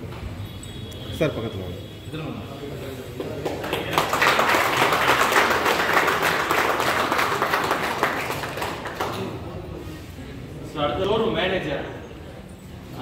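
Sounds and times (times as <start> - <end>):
crowd applauding: 3.2 - 9.5.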